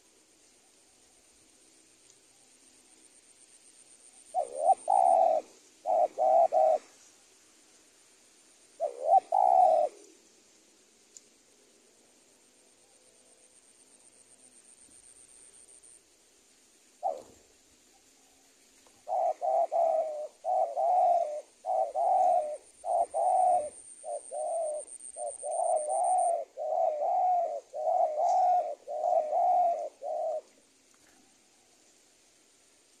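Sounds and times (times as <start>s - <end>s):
dove cooing: 4.3s - 7.0s, 8.8s - 10.1s, 17.0s - 17.5s, 18.9s - 31.2s.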